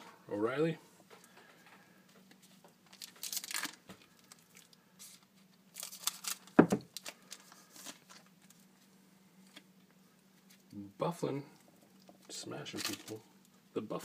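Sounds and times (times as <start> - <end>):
faint steady hum: 0.0 - 14.0
foil pack crinkling: 2.8 - 8.7, 12.0 - 13.4.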